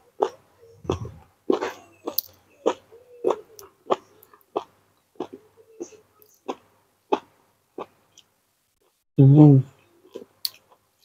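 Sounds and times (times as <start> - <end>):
person chewing with wet mouth smacks: 0.2 - 5.4.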